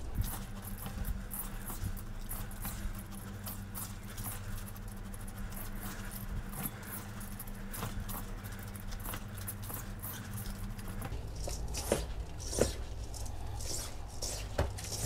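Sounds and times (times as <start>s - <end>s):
gritty scratching of rice in bowl: 11.4s - 15.0s.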